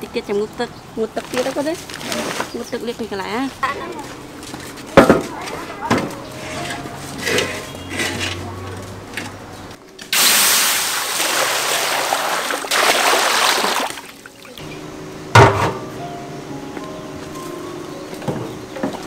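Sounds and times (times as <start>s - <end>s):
water hissing into steam in hot wok: 10.1s - 13.6s.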